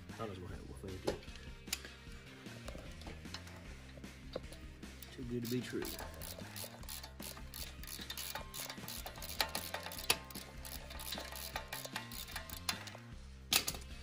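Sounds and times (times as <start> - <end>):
hand tools clinking on metal: 2.8 - 13.8.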